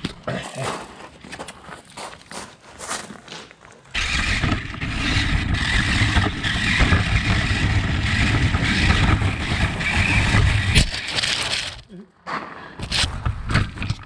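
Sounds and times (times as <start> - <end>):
toy car motor drone: 4.0 - 11.8.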